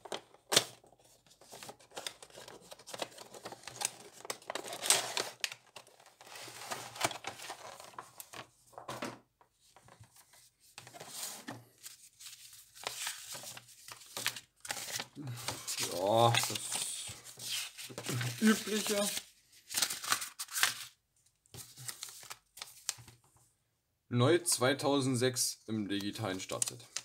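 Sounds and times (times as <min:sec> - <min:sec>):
paper leaflets rustling: 0:00.0 - 0:09.0, 0:09.7 - 0:23.2
plastic packaging crinkling: 0:18.0 - 0:20.9.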